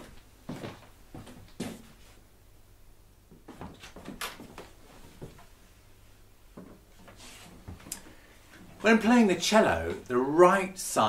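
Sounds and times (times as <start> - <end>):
cello handling knocks and rustles: 6.6 - 7.9.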